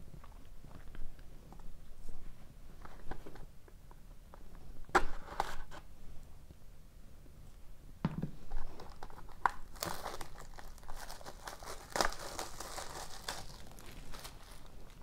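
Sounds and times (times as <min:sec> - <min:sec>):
plastic shrink wrap crinkling: 0:08.5 - 0:15.0.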